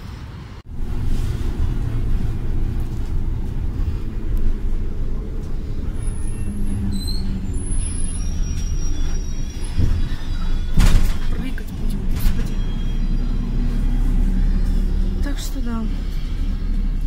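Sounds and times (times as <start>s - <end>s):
bus engine and road rumble: 0.0s - 17.0s
brief high squeals: 5.9s - 11.4s.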